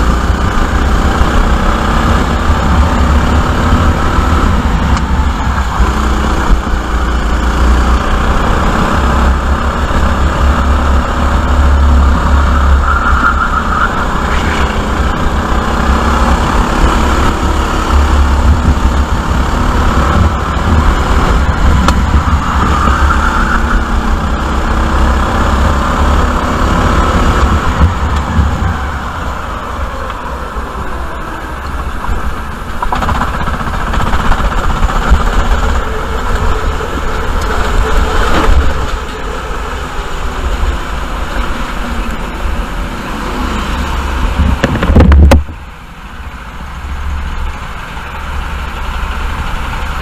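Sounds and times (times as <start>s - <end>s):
go-kart engine running: 0.0s - 50.0s
wind noise on microphone: 16.9s - 24.2s, 44.0s - 45.7s.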